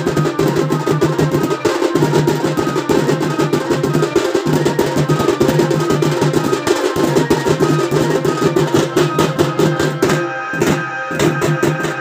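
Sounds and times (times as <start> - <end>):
held melodic tones: 0.0 - 12.0
side drums beaten with sticks: 0.0 - 12.0.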